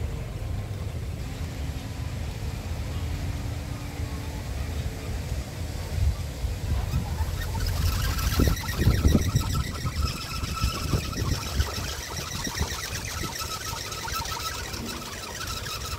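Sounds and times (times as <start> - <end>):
wind rumbling on microphone: 0.0 - 15.9
fast high-pitched pulsing: 6.7 - 15.9.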